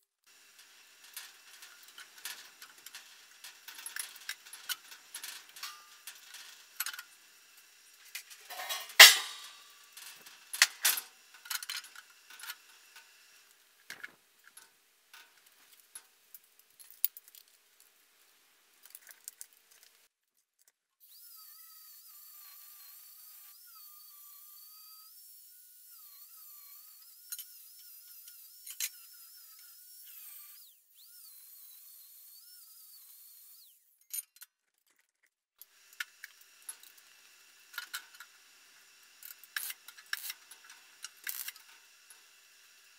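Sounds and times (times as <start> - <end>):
steel clanking: 1.0 - 7.1, 8.1 - 12.6
loud metal clang: 8.5 - 9.6.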